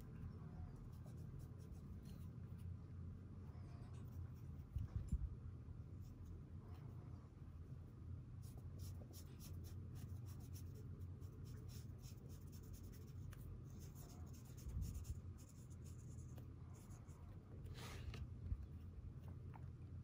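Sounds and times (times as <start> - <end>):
low steady hum: 0.0 - 20.0
brush pen scratching on paper: 8.4 - 18.1.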